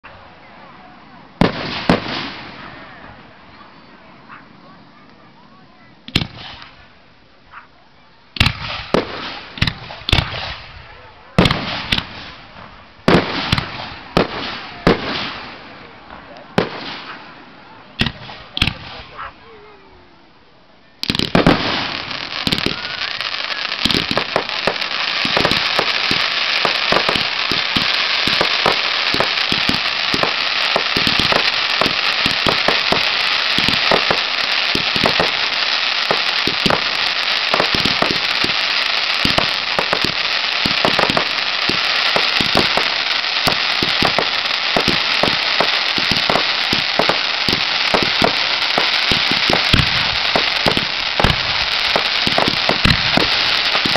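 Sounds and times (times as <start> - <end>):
fireworks crackling and popping: 1.4 - 3.9, 6.0 - 7.0, 8.3 - 19.3, 21.0 - 53.9
firework bang: 21.0 - 23.2, 23.8 - 53.9.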